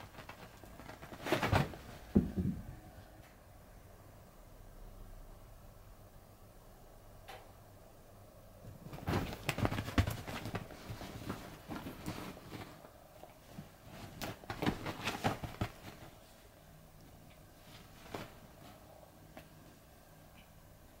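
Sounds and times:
cat paws thumping on bedcover: 8.7 - 12.8, 13.6 - 16.2.

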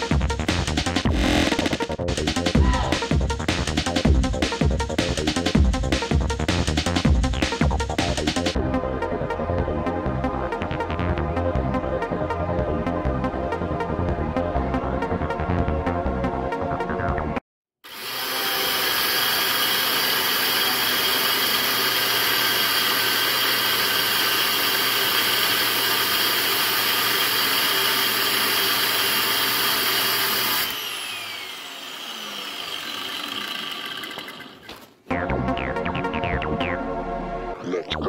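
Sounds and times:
electronic music: 0.0 - 5.8, 35.1 - 38.0
angle grinder cutting steel: 1.1 - 1.8, 17.8 - 34.8.

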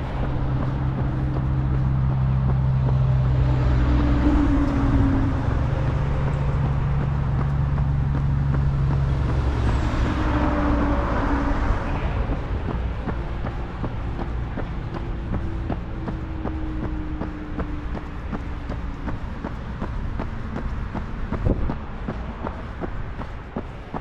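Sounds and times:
vehicle engine running: 0.0 - 24.0
vehicle passing: 0.0 - 24.0.

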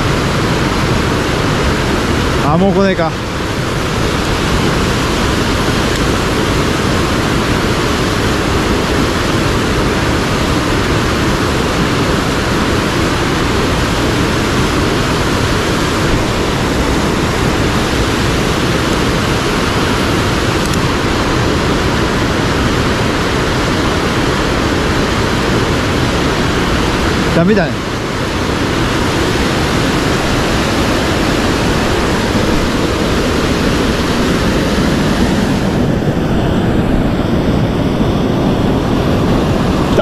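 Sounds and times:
stream water rushing over rocks: 0.0 - 40.0.

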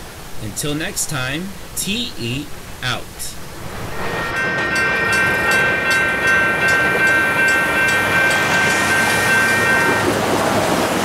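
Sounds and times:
road traffic noise: 0.0 - 11.0
railroad crossing bells ringing: 4.0 - 11.0.

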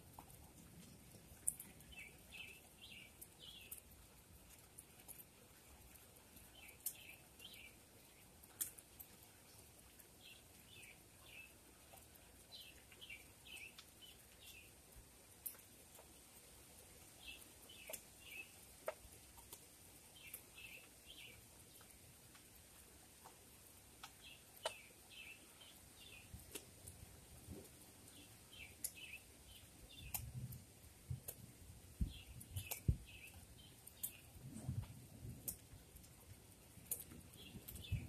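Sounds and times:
faint ticks: 5.9 - 7.6, 8.4 - 9.3, 17.3 - 22.5, 29.9 - 36.2, 36.8 - 38.0.

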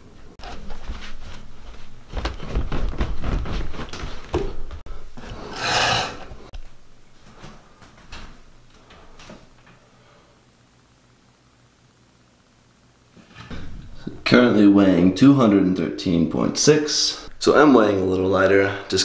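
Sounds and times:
footsteps on carpeted stairs: 0.4 - 5.4, 7.2 - 9.8
scale scraping across tile floor: 5.2 - 6.3.

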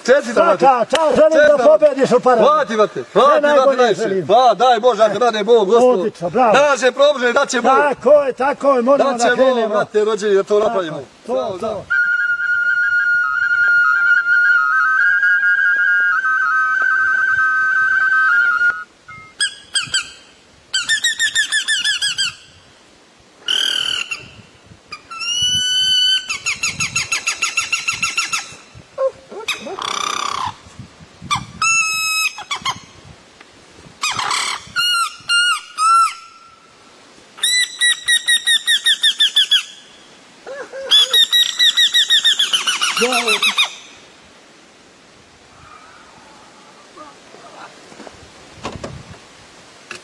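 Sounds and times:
man whistling bird calls: 11.9 - 20.1, 37.4 - 39.8, 40.9 - 43.8.

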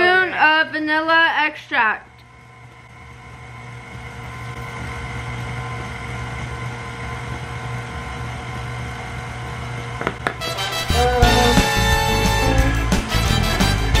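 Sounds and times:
electric mixer motor humming: 3.1 - 14.0.

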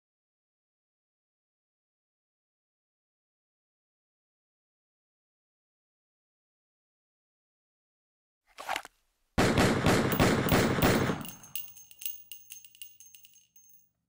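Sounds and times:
machine-gun burst: 9.4 - 11.3
metallic clinks with ringing: 10.1 - 14.0.

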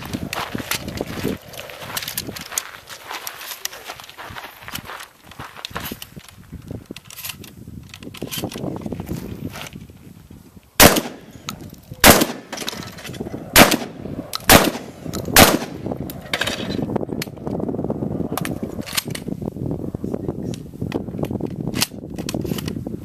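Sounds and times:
shells loaded into shotgun: 4.7 - 8.8, 10.8 - 17.6, 18.4 - 19.3, 21.2 - 22.8
shotgun shots: 10.8 - 11.3, 12.0 - 12.8, 13.5 - 16.5.

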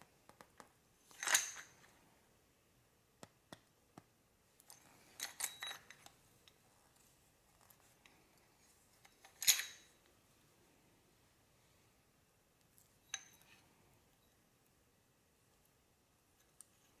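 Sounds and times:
metal hand tools clinking: 1.1 - 1.9, 4.7 - 6.2, 9.0 - 10.0
metallic rattle: 1.1 - 1.9, 9.0 - 10.0.

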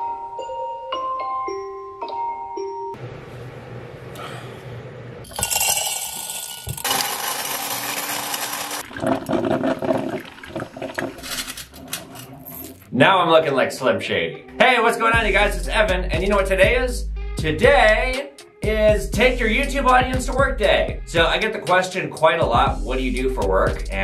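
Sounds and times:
electric coffee grinder running: 5.4 - 8.9
metal chain clinking: 11.2 - 12.9.

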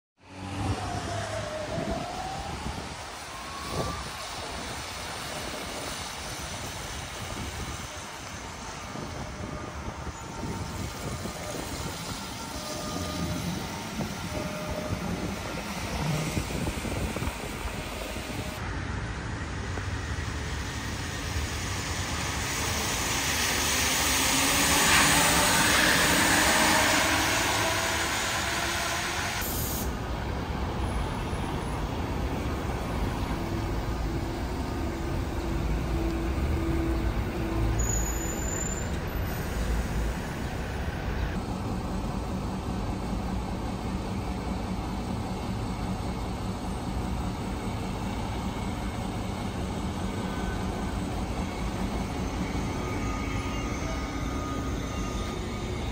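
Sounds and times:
traffic on wet roads: 0.2 - 45.9
tyres hissing on wet asphalt: 20.2 - 30.1, 31.1 - 41.4.

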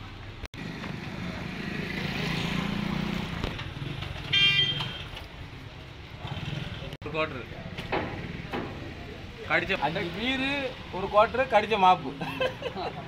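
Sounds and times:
vehicle horn toot: 4.3 - 5.2.

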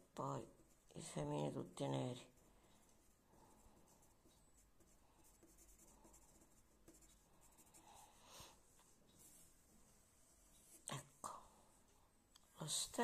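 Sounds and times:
pencil scratching on paper: 0.4 - 1.6, 3.0 - 8.2.

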